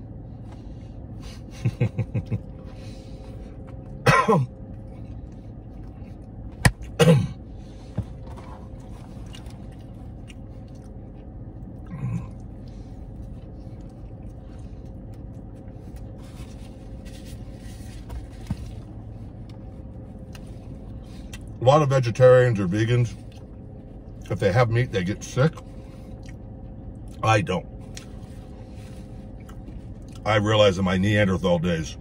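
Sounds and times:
steady low hum: 0:00.0 - 0:32.0
man coughing: 0:04.0 - 0:04.6, 0:06.9 - 0:07.4.

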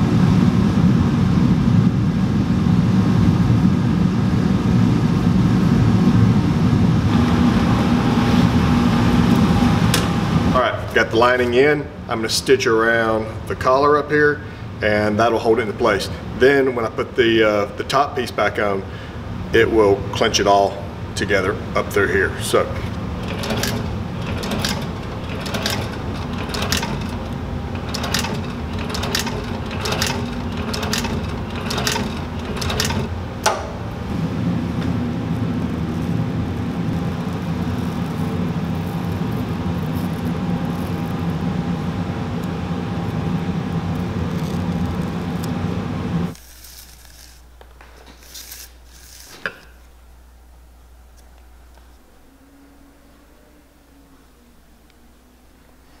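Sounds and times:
sewing machine motor hum: 0:22.4 - 0:34.2
sewing machine stitch clicks: 0:23.2 - 0:33.6.

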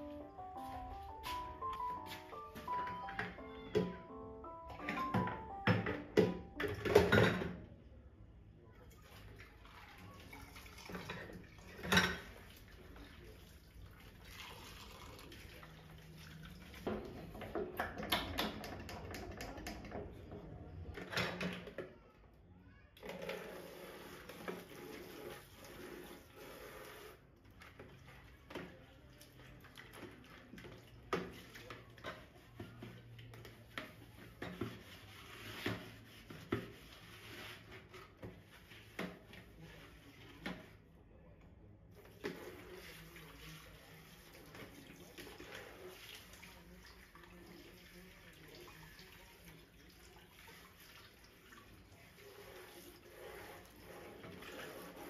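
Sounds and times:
clinks and knocks of household items: 0:04.8 - 0:07.6, 0:16.8 - 0:21.9
running water: 0:08.9 - 0:20.0, 0:42.0 - 0:55.0.

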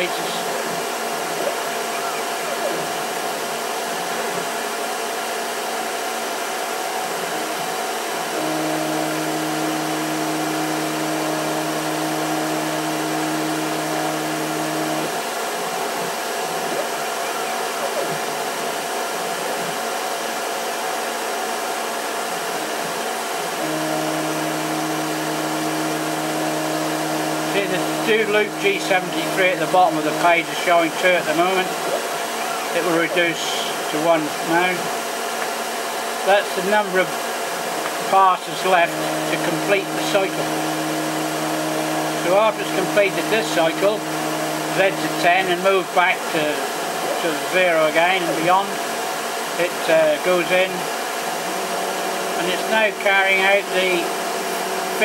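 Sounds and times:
carriage feed low hum: 0:00.0 - 0:55.0
lathe spindle motor whirring: 0:00.0 - 0:55.0.

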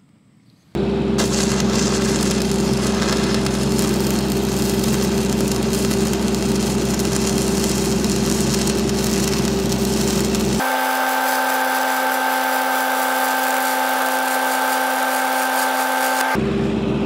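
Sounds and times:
low hum: 0:00.8 - 0:17.0
crackling welding arc: 0:01.2 - 0:16.4.

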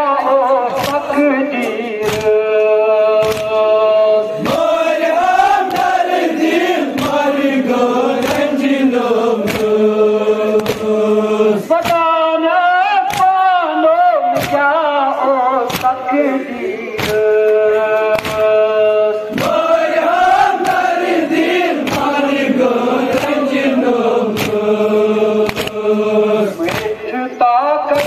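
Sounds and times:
men singing a lament: 0:00.0 - 0:28.0
hands slapping chests: 0:00.7 - 0:12.1, 0:13.0 - 0:13.5, 0:14.3 - 0:14.7, 0:15.6 - 0:16.1, 0:16.9 - 0:18.7, 0:19.3 - 0:27.1.

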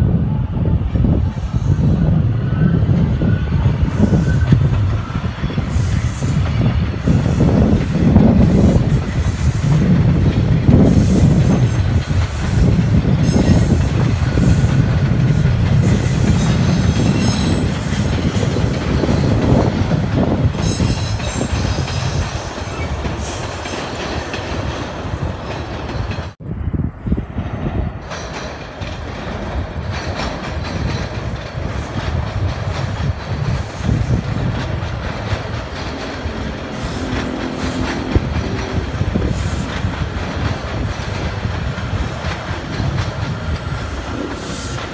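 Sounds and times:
train wheels rumbling on rails: 0:00.0 - 0:44.9.

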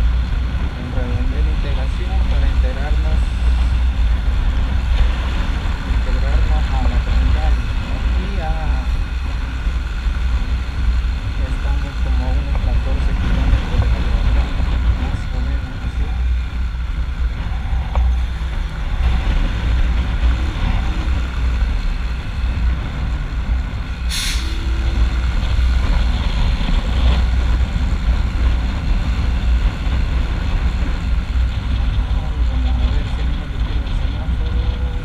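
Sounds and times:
wind rumble on microphone: 0:00.0 - 0:35.0
short burst of hiss: 0:24.1 - 0:24.6.

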